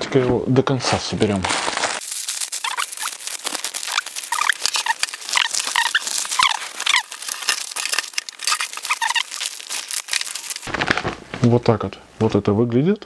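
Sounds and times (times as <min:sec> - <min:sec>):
high squeaky chirps: 0:02.0 - 0:10.7
fabric rustling and frame clicking: 0:05.0 - 0:11.7.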